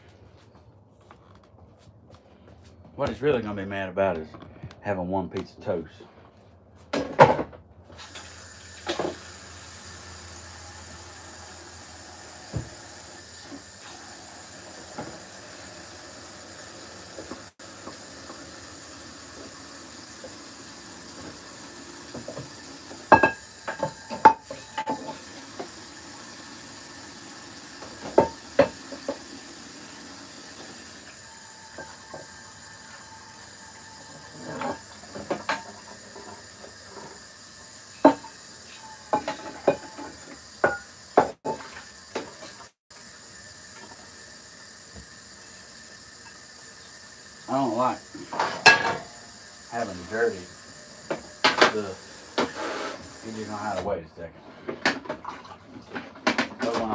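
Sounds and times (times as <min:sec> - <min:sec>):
tap running into a sink: 0:08.0 - 0:09.5, 0:12.4 - 0:15.5, 0:17.0 - 0:29.6, 0:30.2 - 0:33.6, 0:34.6 - 0:37.2, 0:38.0 - 0:38.4, 0:39.1 - 0:42.7, 0:44.9 - 0:45.2, 0:51.0 - 0:53.9
dishware clinking: 0:23.1 - 0:25.2, 0:38.0 - 0:40.9, 0:48.3 - 0:49.2.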